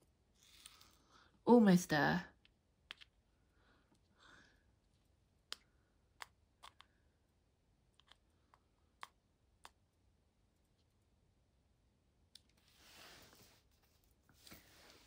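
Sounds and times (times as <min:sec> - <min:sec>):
small pen clicks: 0:05.5 - 0:07.0.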